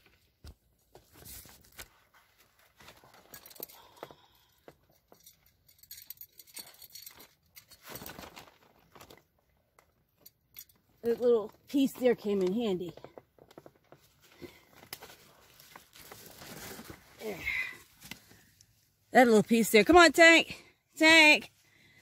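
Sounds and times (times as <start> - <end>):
plastic tarp rustling: 7.8 - 9.5, 13.9 - 18.4.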